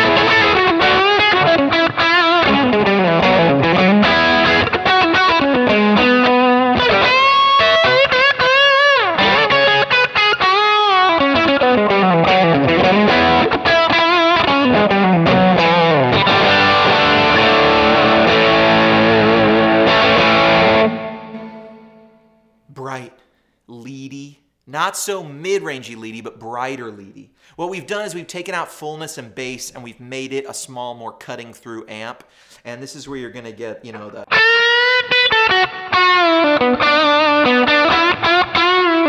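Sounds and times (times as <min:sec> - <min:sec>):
distorted electric guitar lead: 0:00.0 - 0:22.6, 0:34.3 - 0:39.0.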